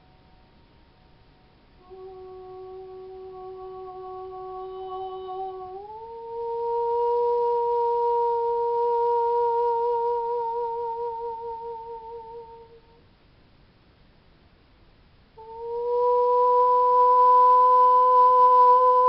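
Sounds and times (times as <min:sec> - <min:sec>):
woman singing wordless note: 0:01.8 - 0:13.0.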